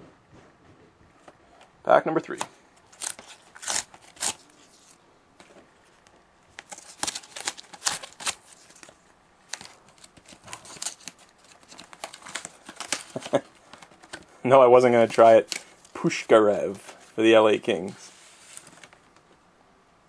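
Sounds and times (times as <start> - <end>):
paper crackling and rustling: 2.8 - 19.4
cardboard pack tearing: 2.9 - 4.9, 6.6 - 8.9, 9.5 - 14.2.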